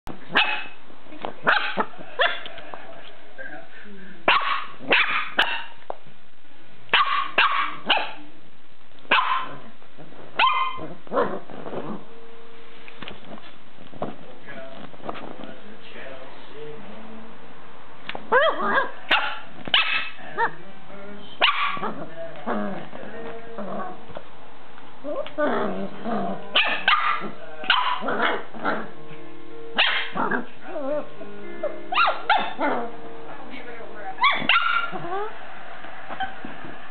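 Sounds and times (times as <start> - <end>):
puppy yapping: 0.3 - 0.8, 4.3 - 5.8, 6.9 - 8.2, 9.1 - 9.6, 10.4 - 11.4, 18.3 - 20.6, 21.4 - 22.0, 26.5 - 28.9, 29.8 - 31.1, 31.9 - 32.9, 34.2 - 35.4.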